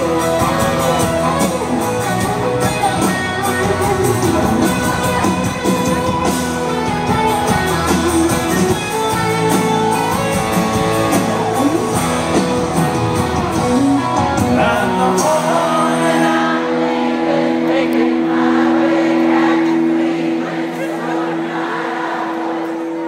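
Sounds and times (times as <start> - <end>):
country band playing: 0.0 - 23.0
person singing: 13.6 - 23.0.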